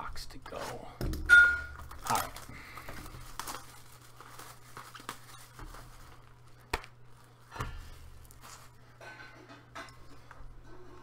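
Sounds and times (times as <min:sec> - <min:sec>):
packaging crinkling and rustling: 0:01.8 - 0:08.8.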